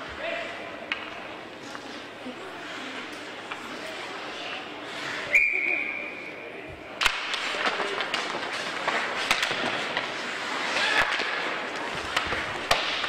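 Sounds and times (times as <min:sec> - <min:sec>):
crowd chatter: 0:00.0 - 0:13.0
high whistle: 0:05.3 - 0:06.3
stick hitting puck: 0:07.0 - 0:13.0
sticks and skates clicking on ice: 0:07.0 - 0:13.0.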